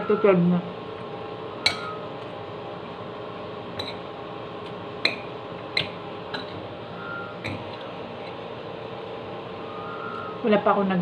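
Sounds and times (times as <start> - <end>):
background hum: 0.0 - 11.0
metal spoon clinking on bowl: 1.7 - 2.0.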